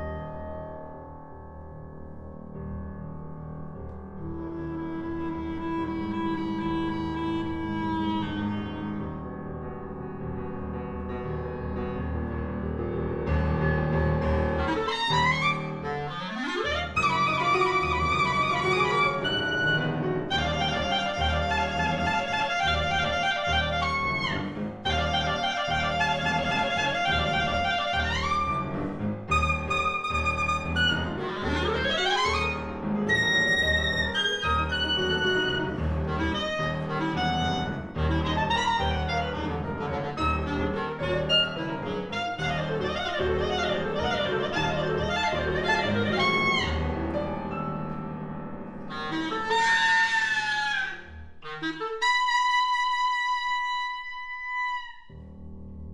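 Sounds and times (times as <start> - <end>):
piano chords: 0.0 - 55.9
clarinet playing: 4.2 - 9.2, 14.5 - 47.6, 48.8 - 55.4.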